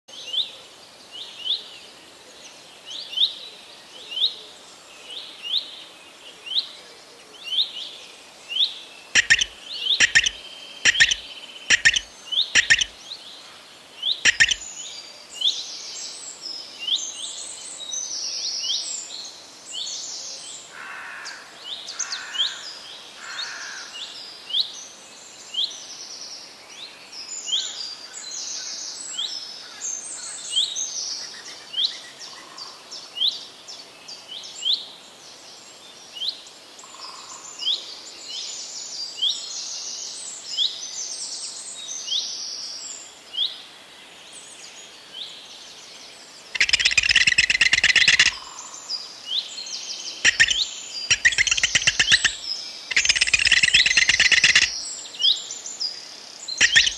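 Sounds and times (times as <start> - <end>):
songbirds chirping: 0.1 - 56.9
sharp loud sounds: 9.2 - 12.9.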